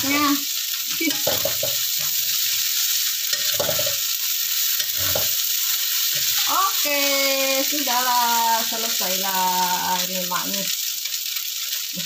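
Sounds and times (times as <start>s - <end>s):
noodles sizzling in a wok: 0.0s - 12.0s
spatula scraping a wok: 1.0s - 6.9s.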